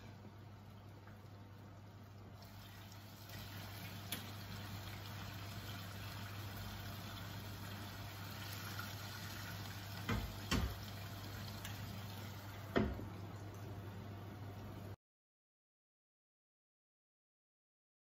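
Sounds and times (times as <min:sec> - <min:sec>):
fish sizzling in a pan: 0:02.4 - 0:13.1
spatula knocking against pan: 0:10.1 - 0:10.8.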